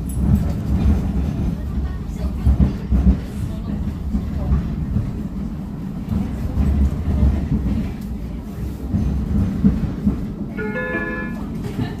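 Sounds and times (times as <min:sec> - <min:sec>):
tram wheels rumbling on rails: 0:00.0 - 0:12.0.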